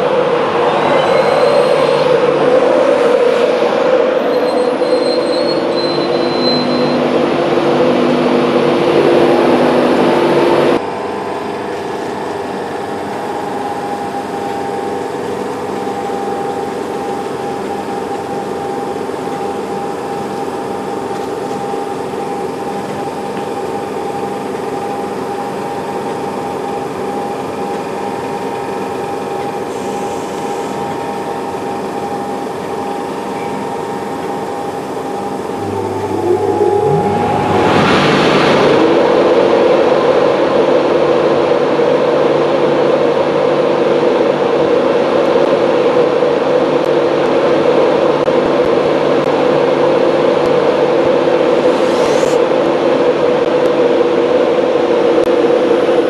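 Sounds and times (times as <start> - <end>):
high wheel squeal: 0.0 - 8.1, 35.6 - 39.8
electric locomotive hum and whine: 0.0 - 56.0.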